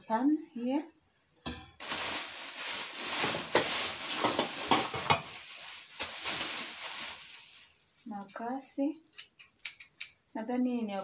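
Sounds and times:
plastic packaging crinkling: 0:01.8 - 0:08.2.

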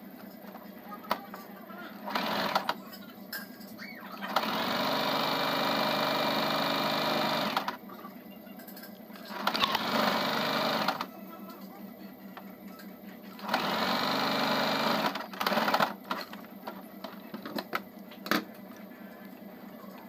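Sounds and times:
sewing machine stitching: 0:02.0 - 0:02.8, 0:04.2 - 0:07.8, 0:09.3 - 0:11.1, 0:13.4 - 0:16.0.

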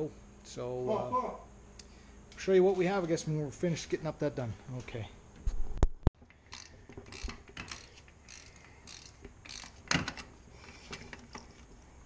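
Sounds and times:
ratchet wrench clicking: 0:06.3 - 0:11.4.

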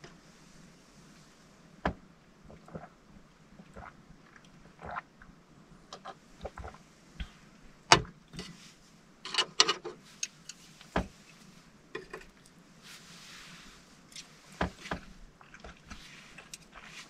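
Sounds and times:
clothing rustle: 0:12.7 - 0:17.0.

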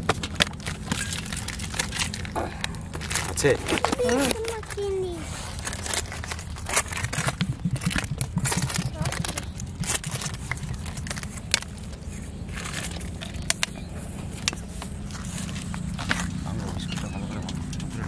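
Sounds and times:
steady low rumble: 0:04.4 - 0:18.0
indistinct talking: 0:06.9 - 0:11.0, 0:16.0 - 0:18.0.

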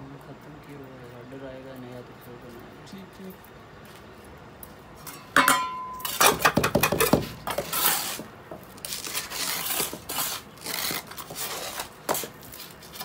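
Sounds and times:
trowel scraping cement: 0:06.0 - 0:13.0.

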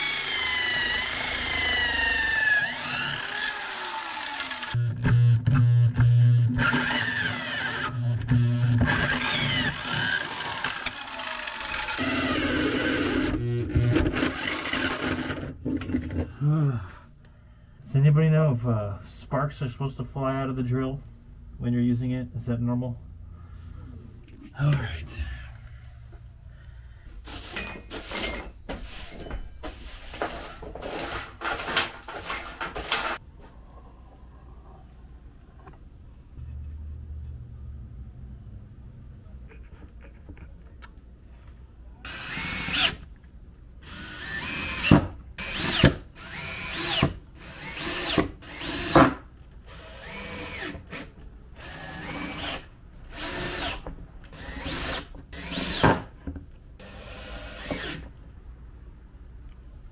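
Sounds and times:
hole saw drilling through wood: 0:00.0 - 0:15.4, 0:42.1 - 0:43.0, 0:43.8 - 0:49.1, 0:49.7 - 0:56.0, 0:56.8 - 0:58.1
broom sweeping wooden floor: 0:27.1 - 0:33.2.

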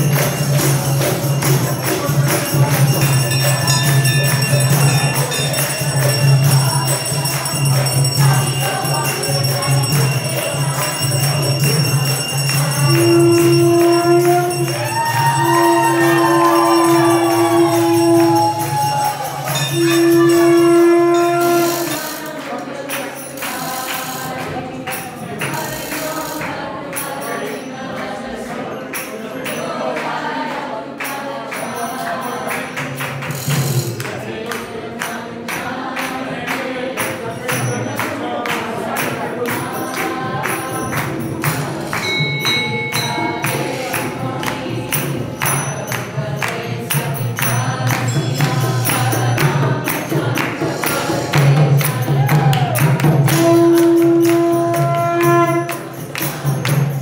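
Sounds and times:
handclaps: 0:00.0 - 0:19.9, 0:32.5 - 0:57.0
group singing a chant: 0:00.0 - 0:57.0
jingling percussion: 0:00.0 - 0:57.0.

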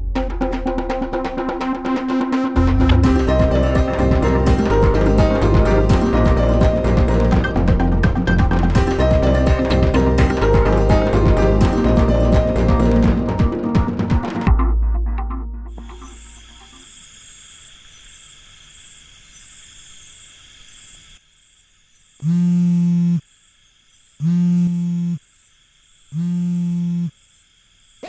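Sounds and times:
insect chirring: 0:15.7 - 0:28.0
loud low buzz: 0:22.2 - 0:23.2, 0:24.2 - 0:25.2, 0:26.2 - 0:27.1.

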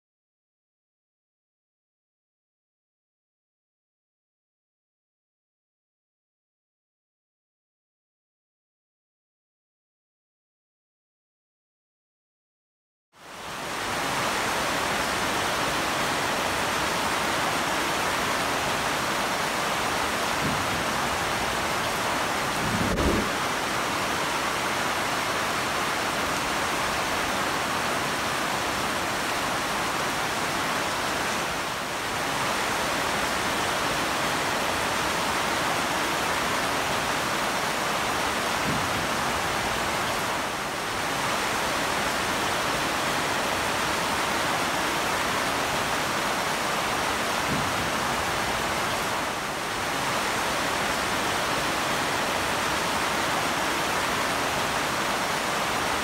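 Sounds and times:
heavy rain on broad leaves: 0:13.2 - 0:56.0.

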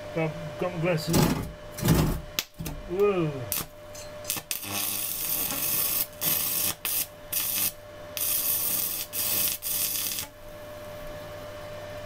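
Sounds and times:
stick welding arc: 0:03.5 - 0:10.5.

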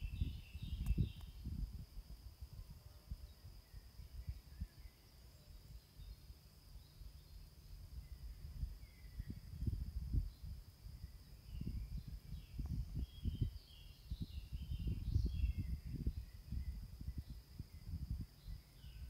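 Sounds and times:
faint bird chirps: 0:00.0 - 0:01.7, 0:02.5 - 0:19.0
wind buffeting microphone: 0:00.0 - 0:04.9, 0:07.9 - 0:19.0
high insect trill: 0:00.0 - 0:19.0.

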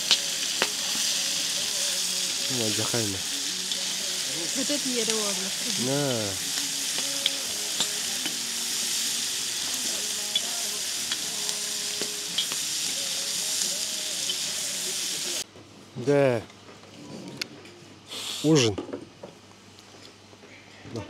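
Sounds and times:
food sizzling in hot oil: 0:00.0 - 0:15.4.

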